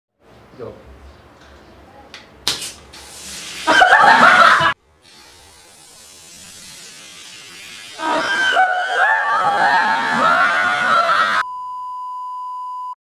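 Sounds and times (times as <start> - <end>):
plastic bottle opening hiss: 2.4 - 3.6
soda fizzing rush: 2.9 - 10.7
shrieking laughter: 3.7 - 4.8, 8.0 - 11.4.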